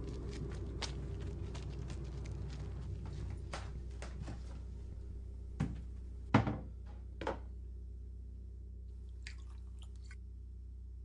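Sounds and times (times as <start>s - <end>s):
low steady hum: 0.0s - 11.0s
knocks on kitchen counter: 5.6s - 7.4s.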